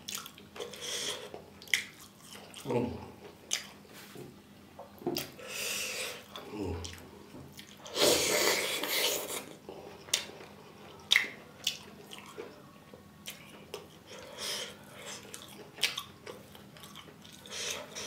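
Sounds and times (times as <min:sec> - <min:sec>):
wet chewing: 0:11.0 - 0:12.6, 0:15.0 - 0:18.0.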